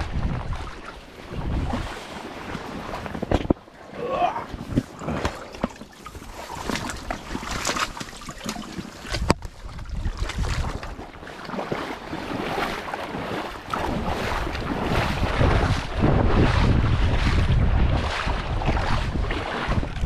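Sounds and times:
wind buffeting microphone: 0:00.0 - 0:03.6, 0:09.0 - 0:11.1, 0:13.2 - 0:20.0.

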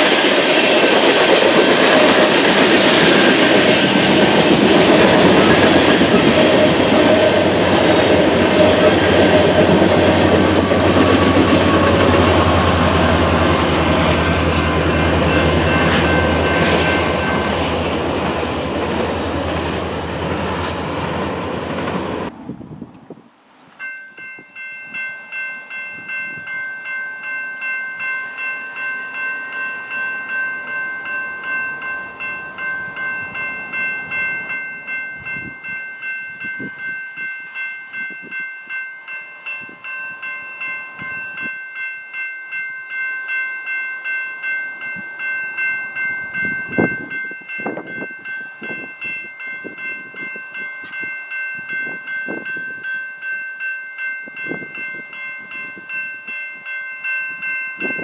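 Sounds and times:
crossing warning bell ringing: 0:00.0 - 0:22.3, 0:23.8 - 0:58.0.

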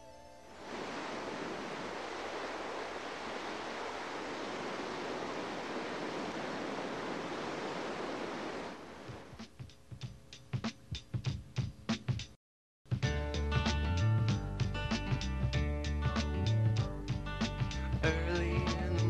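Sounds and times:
whitewater rapids roaring: 0:00.6 - 0:09.3.

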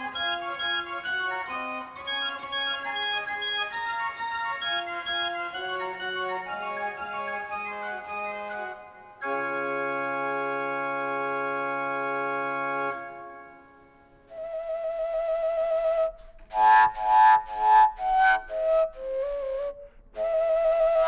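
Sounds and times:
pipe organ playing: 0:00.0 - 0:14.2.

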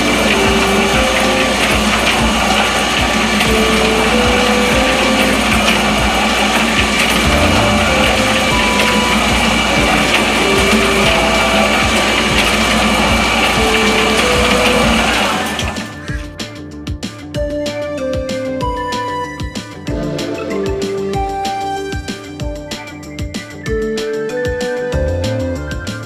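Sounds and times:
rotating drum mixer running: 0:00.0 - 0:16.4
faint background music: 0:00.0 - 0:26.0.

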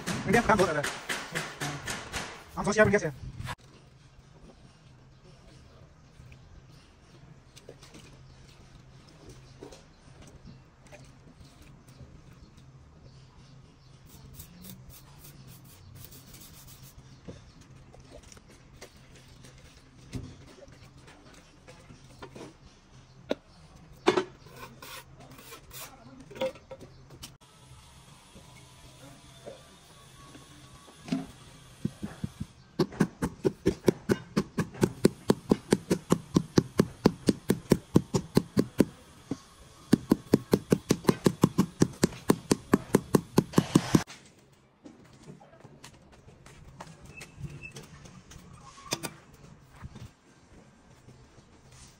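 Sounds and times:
trowel scraping wet cement: 0:24.4 - 0:26.0, 0:39.9 - 0:44.1
rubber mallet tapping stone slab: 0:31.9 - 0:38.9, 0:39.9 - 0:44.0.

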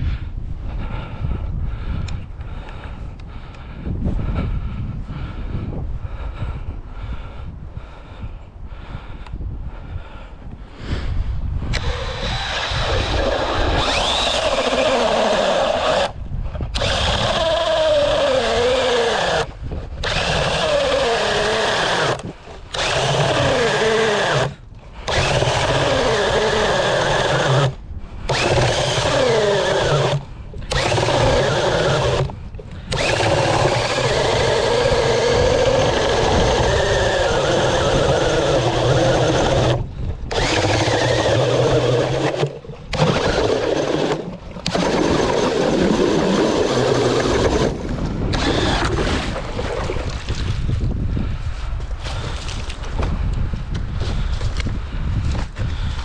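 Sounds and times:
drill auger boring into ice: 0:11.7 - 0:51.4.

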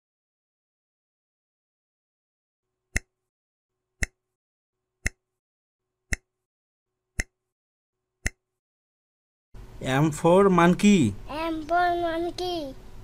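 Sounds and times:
timer ticks: 0:02.9 - 0:03.2, 0:04.0 - 0:04.2, 0:05.0 - 0:05.3, 0:06.1 - 0:06.4, 0:07.2 - 0:07.4, 0:08.2 - 0:08.4.

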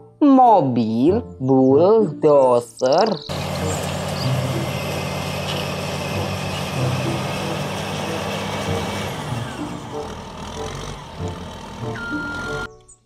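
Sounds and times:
bulldozer blade pushing dirt: 0:03.3 - 0:12.7
bulldozer diesel engine running: 0:03.3 - 0:12.7.

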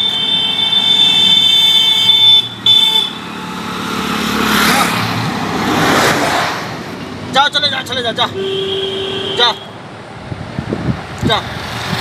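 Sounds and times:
vehicle horn: 0:00.0 - 0:03.3, 0:08.4 - 0:09.8
passing vehicle road noise: 0:00.0 - 0:12.0.

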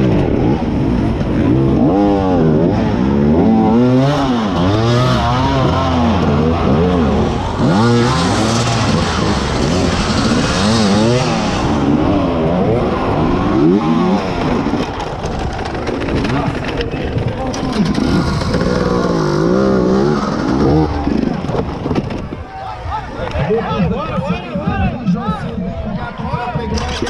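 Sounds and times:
motorcycle engine revving: 0:00.0 - 0:22.4.

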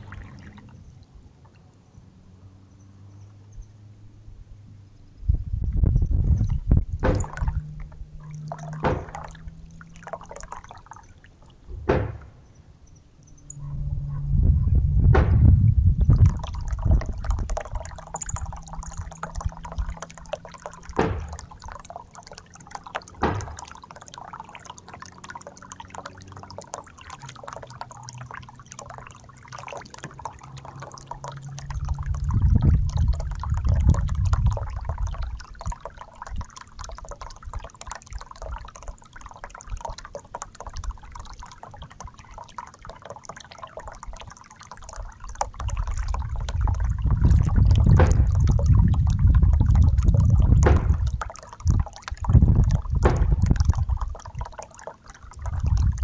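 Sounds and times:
fountain water splashing and trickling: 0:00.0 - 0:04.0, 0:05.1 - 0:12.4, 0:15.2 - 0:56.0
low rumble: 0:05.2 - 0:10.1, 0:13.3 - 0:21.8, 0:31.5 - 0:35.2, 0:45.6 - 0:54.1.

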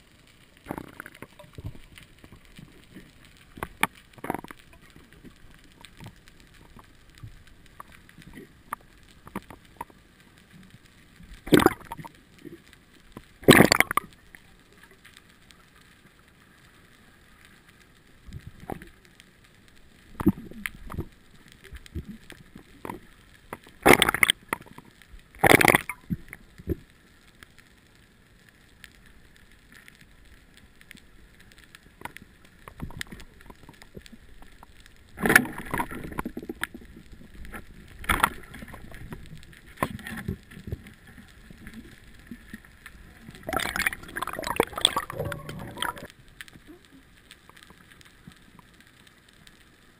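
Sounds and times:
faint underwater water noise: 0:00.0 - 0:49.9
gurgling and bubbling bursts: 0:11.4 - 0:12.1, 0:13.4 - 0:14.1, 0:23.8 - 0:24.5, 0:25.3 - 0:26.2, 0:35.1 - 0:40.9, 0:43.0 - 0:46.1.

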